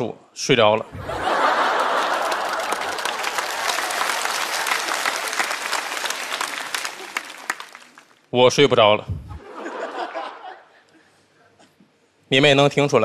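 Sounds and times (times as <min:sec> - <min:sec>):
audience applauding: 0:01.0 - 0:08.2.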